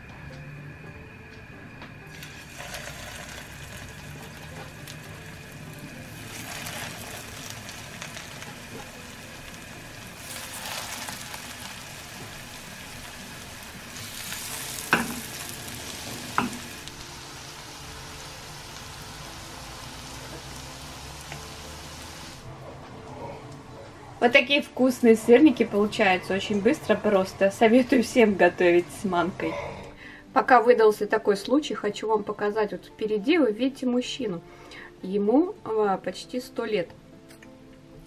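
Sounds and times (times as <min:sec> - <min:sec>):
patties sizzling in oil: 0:02.1 - 0:22.4.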